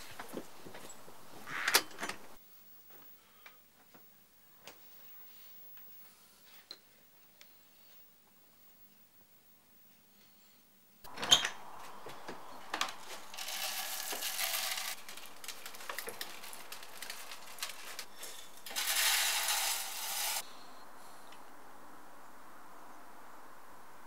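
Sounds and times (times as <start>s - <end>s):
seeds rattling in metal pan: 13.0s - 20.4s.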